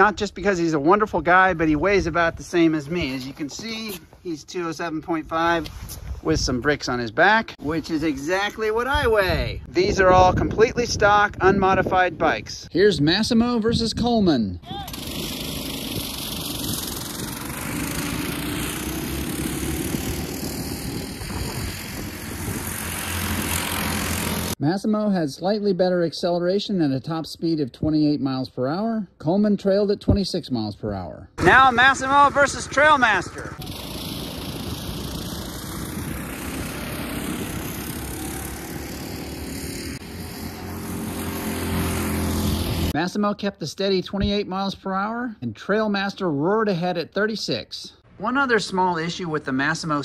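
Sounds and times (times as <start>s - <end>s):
minibike engines buzzing: 14.7s - 24.6s, 31.4s - 43.0s.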